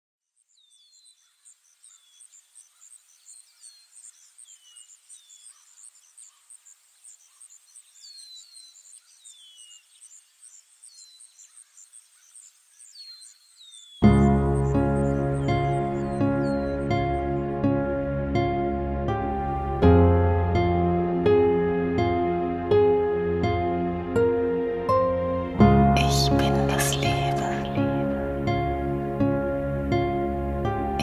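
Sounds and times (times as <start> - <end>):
insects chirping: 0.3 - 17.2.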